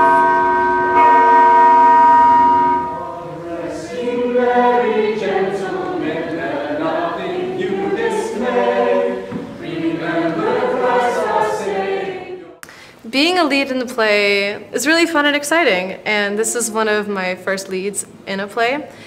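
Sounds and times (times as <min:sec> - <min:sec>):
bell-like chord: 0:00.0 - 0:03.2
choir singing: 0:02.3 - 0:12.6.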